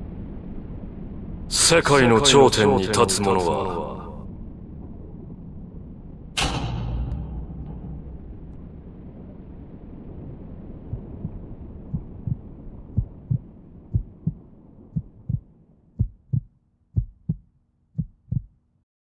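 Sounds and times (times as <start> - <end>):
low rumbling noise: 0.0 - 18.5
faint low hum: 0.0 - 18.8
heartbeat thumps: 10.9 - 14.4, 15.0 - 17.4, 18.0 - 18.5.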